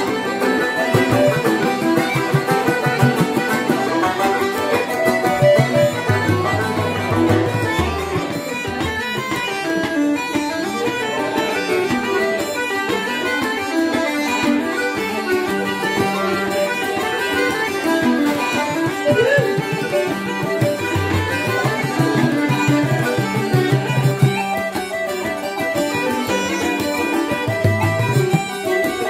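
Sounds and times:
bouzouki: 0:00.0 - 0:29.0
button accordion: 0:00.0 - 0:29.0
tenor banjo: 0:00.0 - 0:29.0
uilleann pipes: 0:19.0 - 0:20.0.

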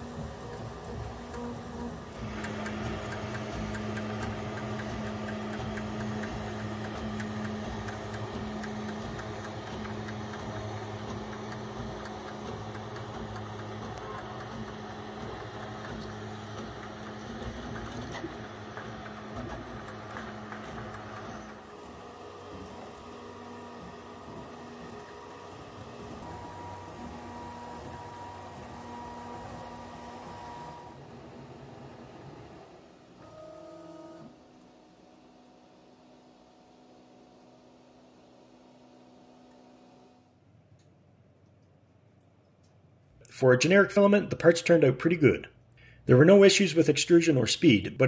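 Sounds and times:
three-d printer motors whirring: 0:00.0 - 0:35.4.

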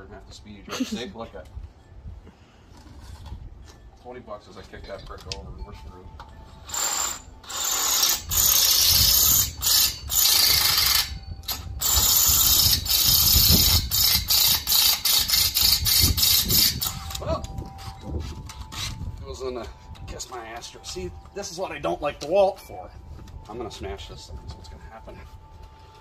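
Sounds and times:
power drill boring into steel: 0:06.5 - 0:19.0.

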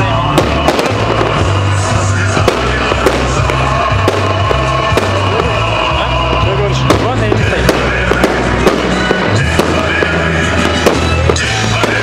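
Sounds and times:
fireworks bangs: 0:00.0 - 0:12.0
loud music with heavy bass: 0:00.0 - 0:12.0.

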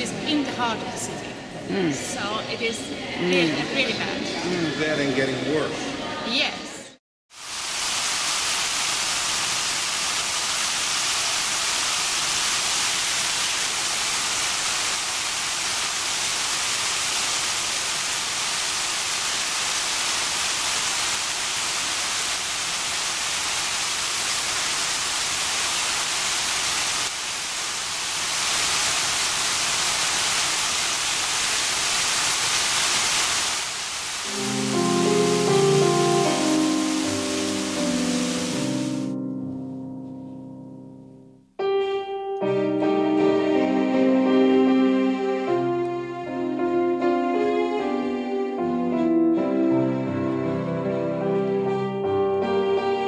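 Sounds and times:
fountain water splashing: 0:07.3 - 0:39.2.

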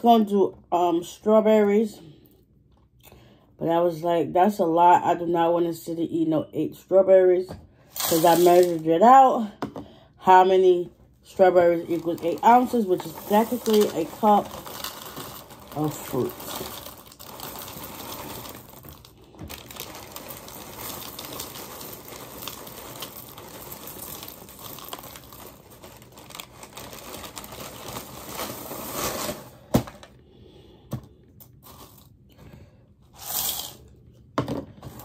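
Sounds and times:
cereal pouring from crinkling bag: 0:08.0 - 0:08.8, 0:11.8 - 0:29.7.

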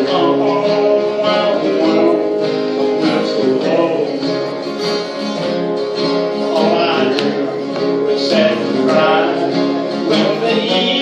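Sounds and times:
man singing: 0:00.0 - 0:05.1, 0:06.1 - 0:11.0
strummed acoustic guitar: 0:00.0 - 0:11.0.

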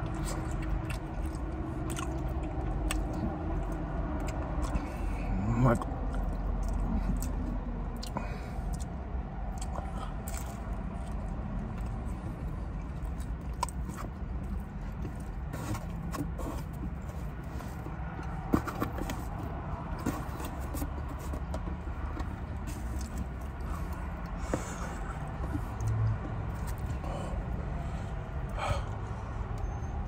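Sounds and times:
chewing with wet mouth clicks: 0:00.0 - 0:17.2, 0:22.1 - 0:27.0.

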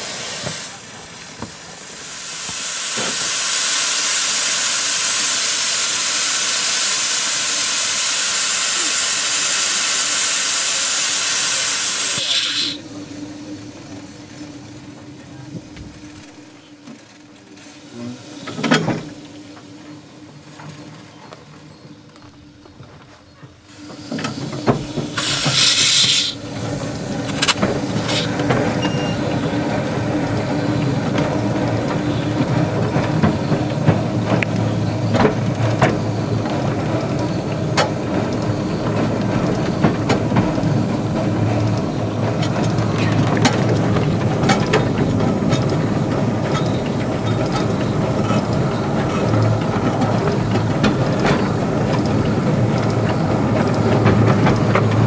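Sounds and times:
steam hiss: 0:00.0 - 0:14.8, 0:23.6 - 0:36.4
steam train running: 0:00.0 - 0:55.0
wheels clicking over rail joints: 0:20.5 - 0:55.0.

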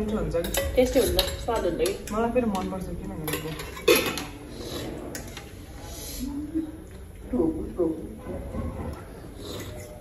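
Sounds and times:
spoons clinking on plates: 0:00.3 - 0:04.4.

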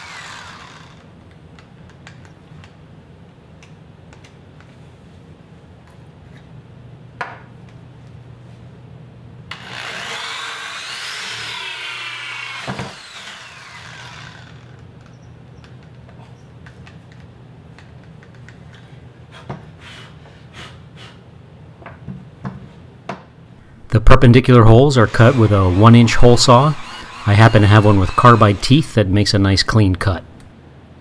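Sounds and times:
electric drill drilling wood: 0:00.0 - 0:01.1, 0:09.5 - 0:14.8, 0:24.8 - 0:28.9
handling clicks and taps: 0:14.8 - 0:18.8.

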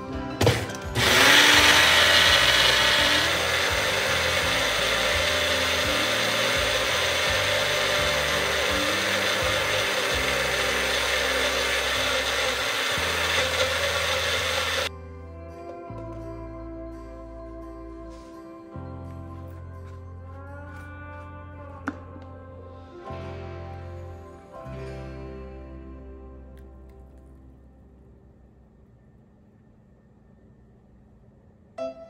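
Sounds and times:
blender motor whirring: 0:01.0 - 0:14.9.

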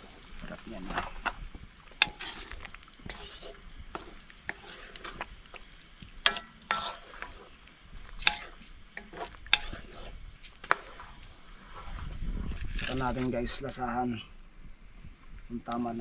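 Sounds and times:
spoon scraping a cooking pan: 0:00.9 - 0:13.0.

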